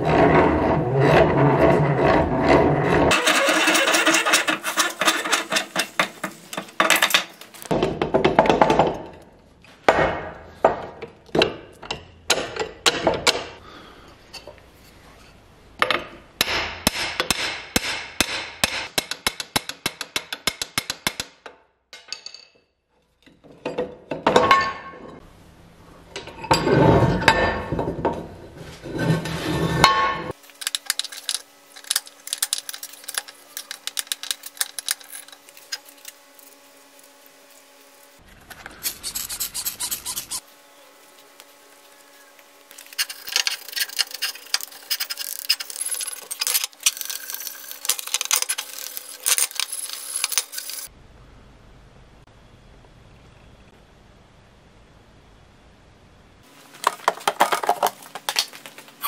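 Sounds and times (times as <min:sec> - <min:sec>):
vise jaw rattling and scraping: 0:00.0 - 0:07.3, 0:30.6 - 0:36.2, 0:38.8 - 0:40.4, 0:42.7 - 0:50.9
faint steady hum: 0:24.4 - 0:59.0.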